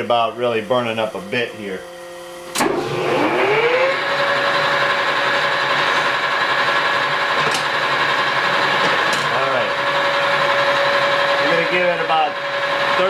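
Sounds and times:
lathe motor whine: 0.0s - 13.0s
lathe switch click: 2.5s - 2.8s.

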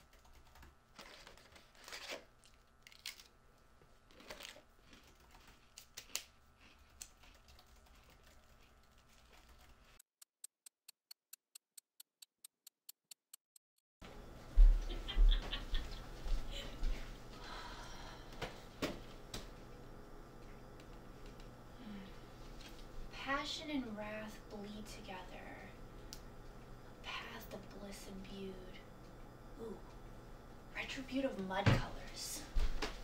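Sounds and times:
typing on a keyboard: 0.0s - 0.7s
even ticking: 9.6s - 13.6s.

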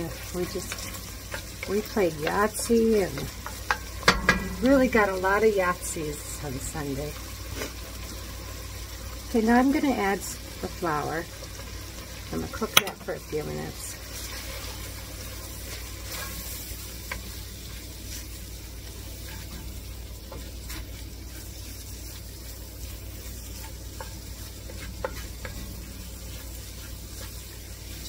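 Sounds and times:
vegetables sizzling in a pot: 0.0s - 28.0s
wooden spatula scraping a pot: 23.3s - 28.0s.

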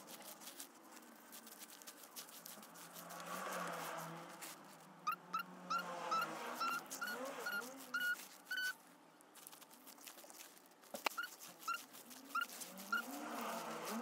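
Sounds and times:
small animal chirping: 5.0s - 8.8s, 11.0s - 14.0s.

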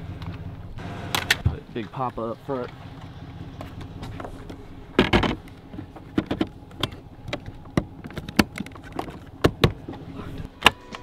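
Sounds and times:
sharp plastic clicks and knocks: 5.0s - 10.0s.

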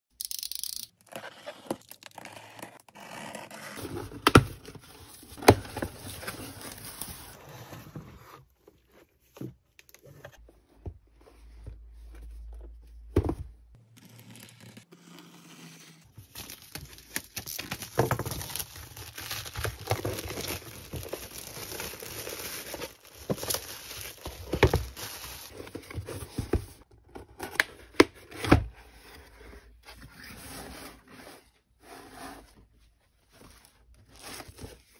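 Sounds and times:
paper crinkling: 16.1s - 26.3s.

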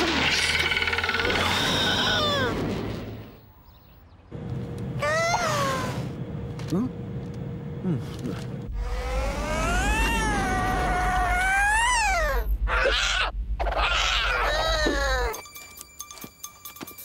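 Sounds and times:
cartoon cat yowling and screeching: 1.4s - 2.6s, 9.0s - 15.3s.

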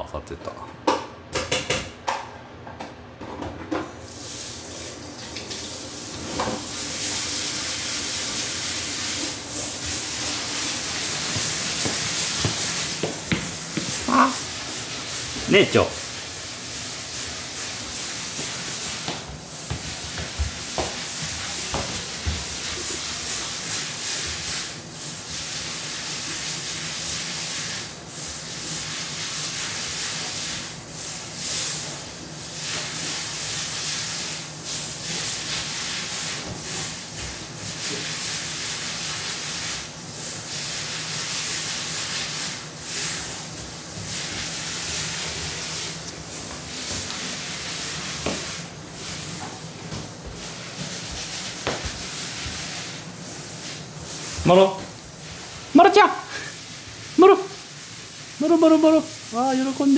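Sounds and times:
steady hissing noise: 4.0s - 59.9s.

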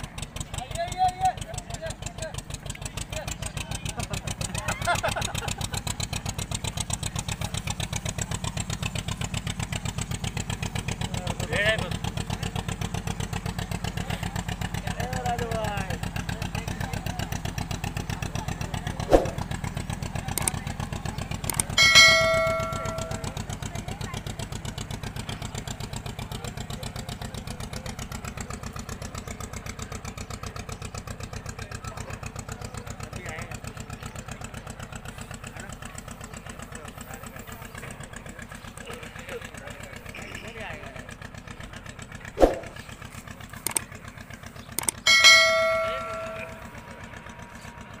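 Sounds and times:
motor boat engine chugging: 0.0s - 48.0s
short swoosh: 19.0s - 19.4s, 42.4s - 42.8s
clicks: 20.3s - 20.6s, 21.4s - 21.8s, 43.6s - 43.9s, 44.7s - 45.1s
bell ding: 21.8s - 23.3s, 45.1s - 46.7s.

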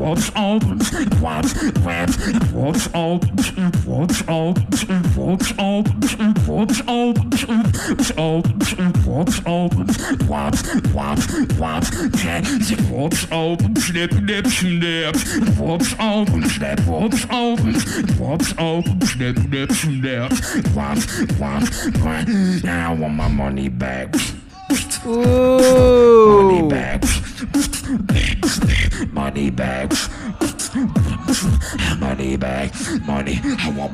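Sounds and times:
beatboxing into microphone: 0.0s - 33.9s.

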